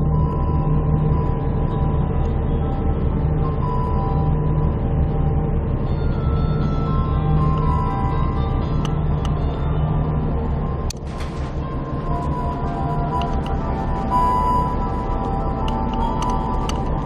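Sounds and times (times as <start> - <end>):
diesel railcar engine idling: 0.0 - 17.0
high held notes: 11.6 - 17.0.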